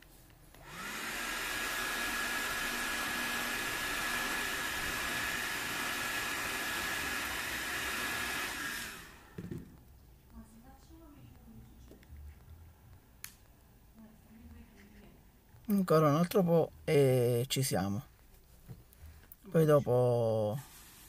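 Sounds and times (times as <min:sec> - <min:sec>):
hair dryer blowing: 0:00.5 - 0:09.8.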